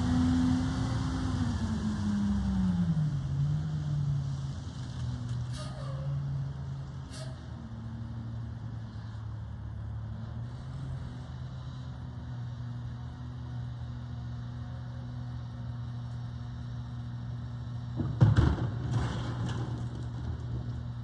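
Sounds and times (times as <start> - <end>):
trash thuds and clatter: 17.9 - 20.9.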